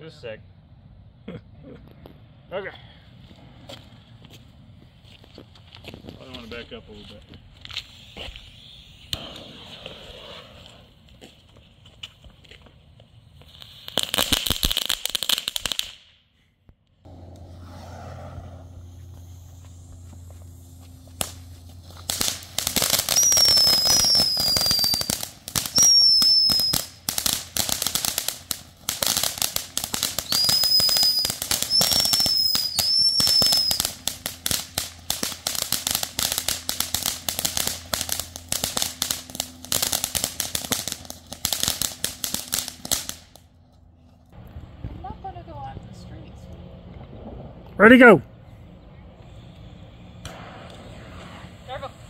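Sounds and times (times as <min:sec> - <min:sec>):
firework fountain crackling: 0:05.3 - 0:16.2, 0:17.1 - 0:43.6, 0:49.9 - 0:52.0
short high firework whistles: 0:07.6 - 0:11.0, 0:13.4 - 0:16.5, 0:17.1 - 0:28.2, 0:28.9 - 0:43.1, 0:49.2 - 0:52.0.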